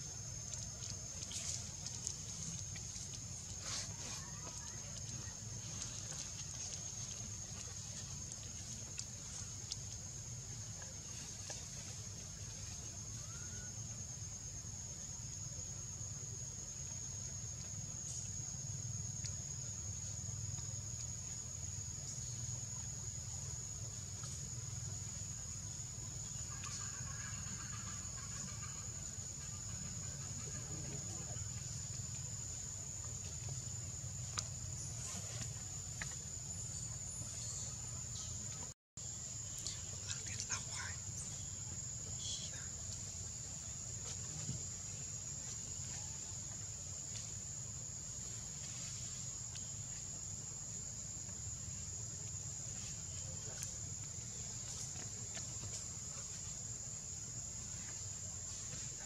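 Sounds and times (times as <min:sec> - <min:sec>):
insects droning: 0:00.0 - 0:59.0
faint chirping: 0:39.4 - 0:42.9.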